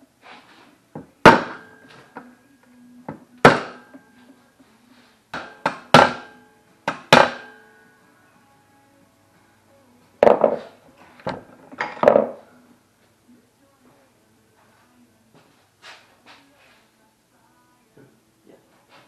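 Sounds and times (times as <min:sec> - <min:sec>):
hammer striking metal rod: 0:03.4 - 0:03.9, 0:05.4 - 0:07.6.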